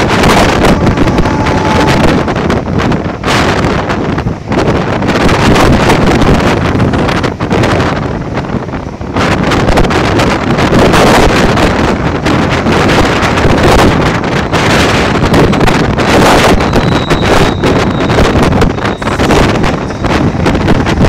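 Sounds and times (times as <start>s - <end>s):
train running on track: 0.0s - 21.0s
wind buffeting microphone: 0.0s - 21.0s.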